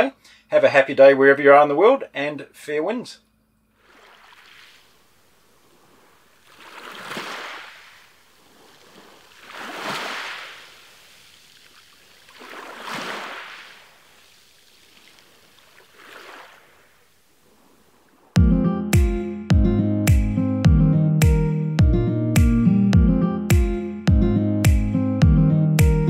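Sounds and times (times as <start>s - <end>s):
waves washing over pebbles: 3.8s - 17.8s.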